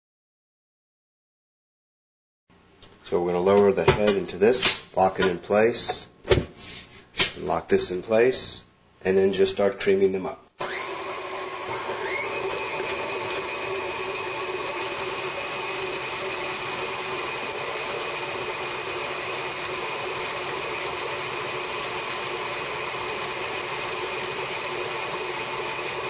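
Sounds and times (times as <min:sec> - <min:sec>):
beaters churning butter: 0:10.6 - 0:26.0
stand mixer motors whining: 0:10.6 - 0:26.0.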